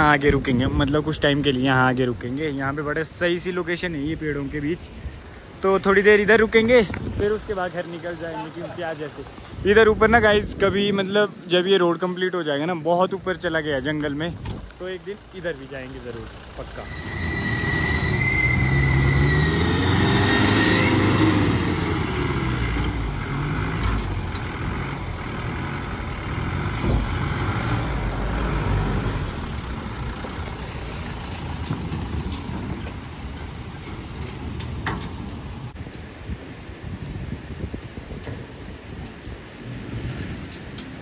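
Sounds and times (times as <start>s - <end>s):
engine revving and driving off: 15.1s - 34.4s, 39.6s - 41.0s
high whine: 16.7s - 23.3s.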